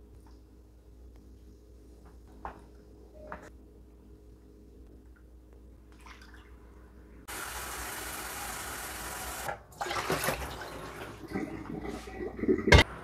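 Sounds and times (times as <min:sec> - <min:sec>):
water running from tap: 0:07.3 - 0:11.2.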